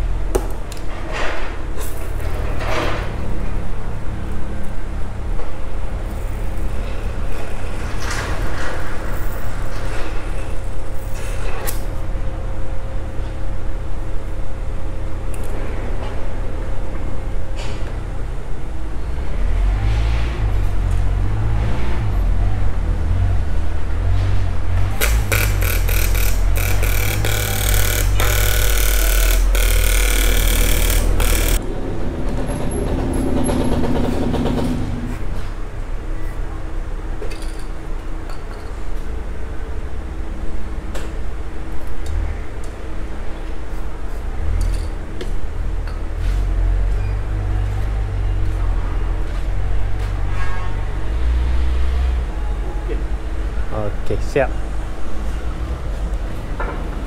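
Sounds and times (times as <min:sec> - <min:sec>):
welding torch flame hissing: 0:25.0 - 0:31.6.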